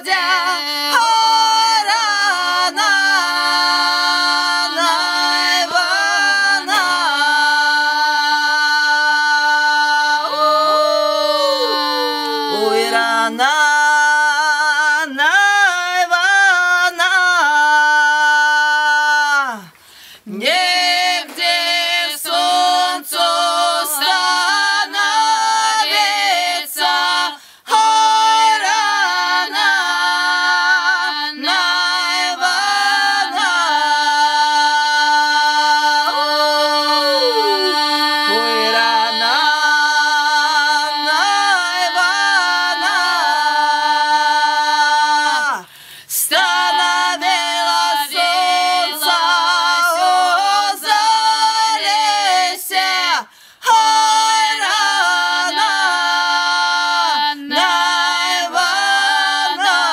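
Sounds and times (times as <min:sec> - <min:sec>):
women singing folk song a cappella: 0:00.0 - 0:59.9
low vocal drone: 0:10.1 - 0:13.4, 0:35.4 - 0:40.2.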